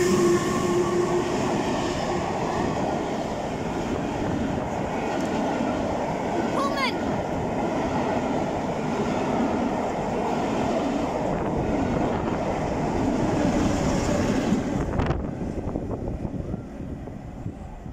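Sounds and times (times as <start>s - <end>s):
train wheels rumbling on rails: 0.0s - 17.9s
wind on microphone: 11.1s - 17.9s.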